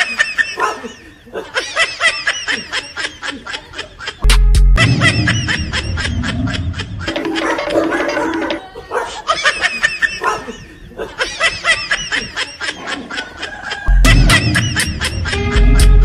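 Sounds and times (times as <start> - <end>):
high-pitched giggling laughter: 0.0 - 16.0
music with heavy bass beat: 4.3 - 5.6, 14.0 - 16.0.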